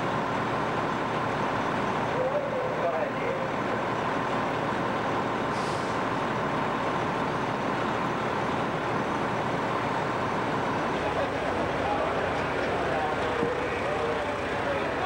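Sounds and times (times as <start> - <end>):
fire engines running: 0.0 - 15.0
short hiss: 5.5 - 6.0.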